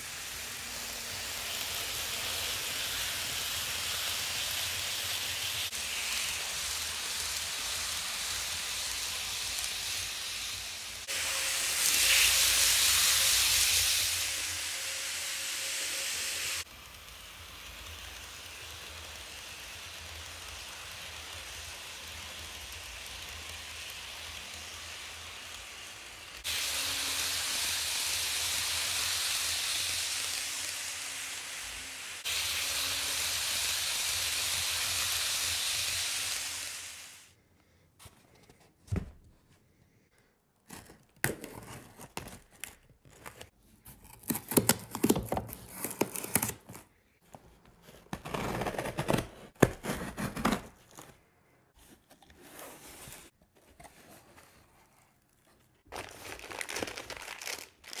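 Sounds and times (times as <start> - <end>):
steady hiss: 0.0 - 37.4
knife slitting packing tape: 40.7 - 46.8, 48.0 - 51.1.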